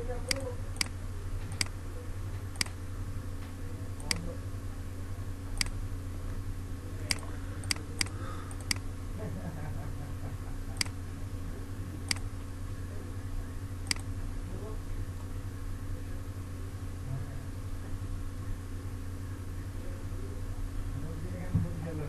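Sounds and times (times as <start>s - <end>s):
low electrical hum: 0.0s - 22.0s
mouse button clicking: 4.0s - 4.2s, 5.6s - 5.8s, 7.1s - 8.8s, 13.9s - 14.1s.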